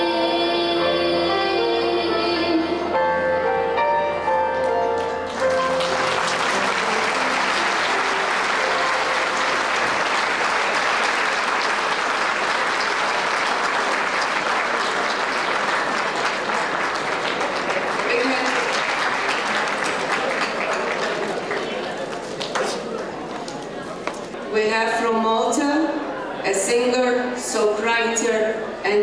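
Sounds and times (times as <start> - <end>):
song accompaniment: 0.0 - 10.7
audience applause: 5.0 - 24.3.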